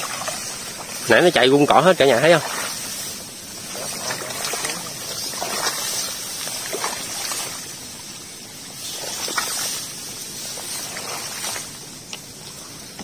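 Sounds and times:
shallow water sloshing: 0.0s - 12.8s
water splashes: 0.0s - 13.0s
wet grass rustling: 0.0s - 13.0s.

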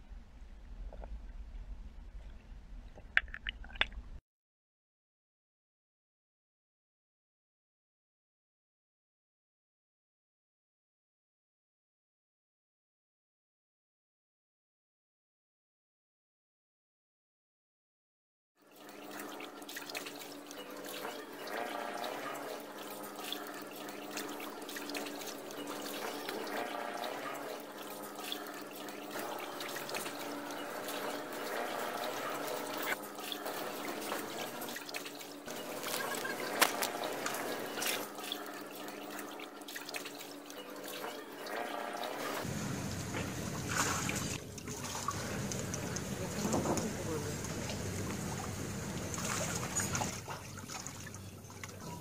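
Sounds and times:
water sloshing and trickling: 0.9s - 4.2s, 18.6s - 52.0s.

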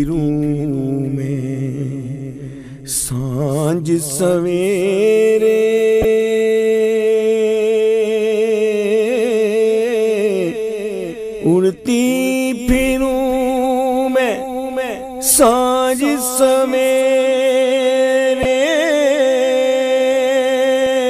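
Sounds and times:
man singing unaccompanied: 0.0s - 21.0s.

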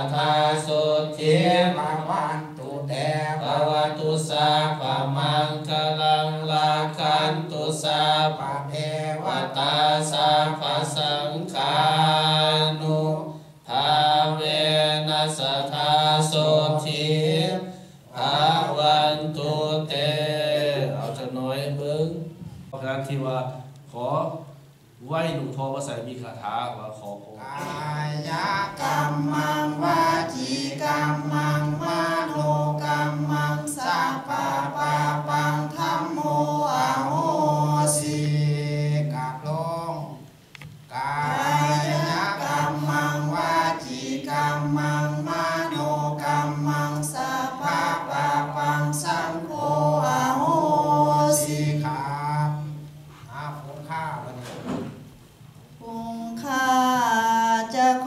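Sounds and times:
man chanting in monotone: 0.0s - 28.8s, 36.1s - 40.2s, 48.0s - 54.9s.

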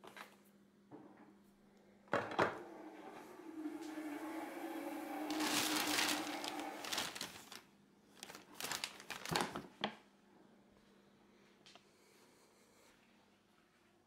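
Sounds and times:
plastic bag rustling: 5.0s - 9.8s.

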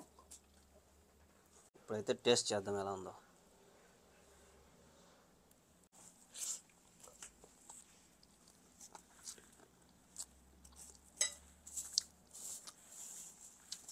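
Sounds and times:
mouth smacks while eating: 11.7s - 12.8s.

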